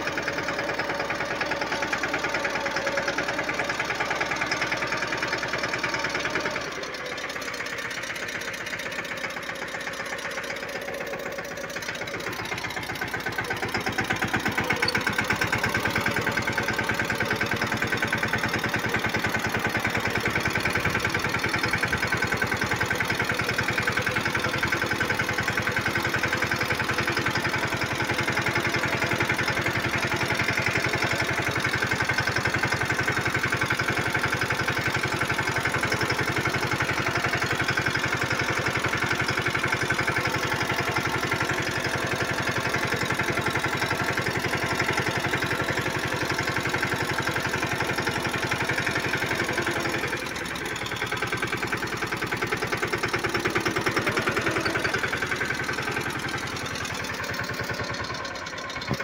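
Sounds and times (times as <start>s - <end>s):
diesel tractor engine running: 0.0s - 59.0s.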